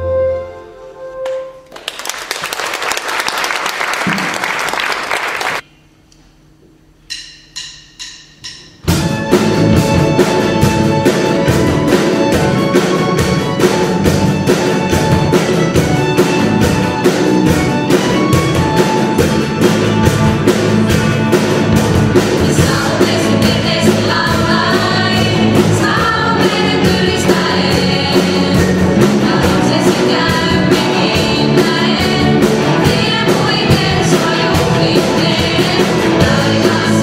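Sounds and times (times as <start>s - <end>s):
audience applause: 1.7s - 5.6s
gospel band playing fast song: 8.8s - 37.0s.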